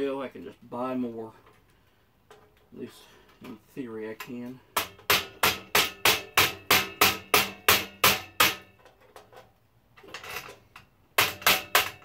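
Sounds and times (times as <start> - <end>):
hammer striking wood chisel: 4.8 - 8.7, 11.2 - 12.0.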